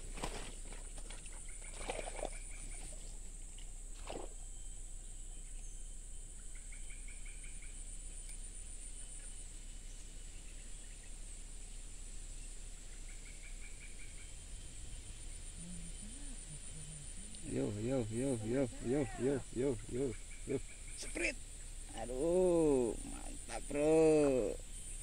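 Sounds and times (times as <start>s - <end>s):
soft rustles: 0.0s - 4.4s
high insect buzz: 1.9s - 25.0s
rapid chattering animal call: 15.3s - 24.6s.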